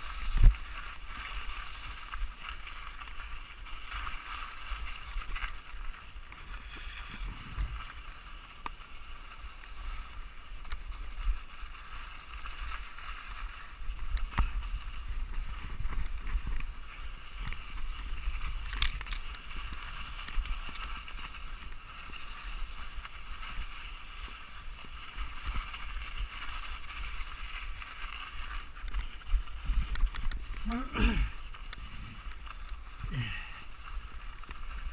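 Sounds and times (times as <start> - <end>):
tyres rumbling on trail: 0.0 - 34.9
wind on microphone: 6.3 - 8.0, 13.7 - 34.9.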